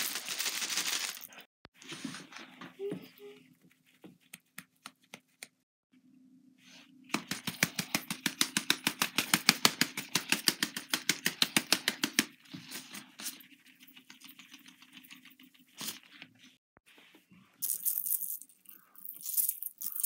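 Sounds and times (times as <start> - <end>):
sprinkles container rattling: 0.0 - 1.4, 17.6 - 20.0.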